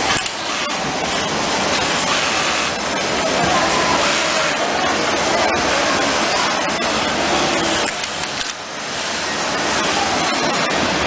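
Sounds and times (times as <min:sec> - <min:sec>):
sewing machine running: 0:00.0 - 0:11.0.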